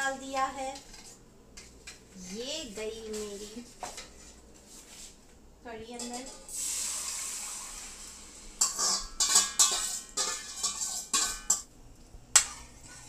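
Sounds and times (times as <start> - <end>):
metal spoon scraping a steel bowl: 8.6 - 11.6.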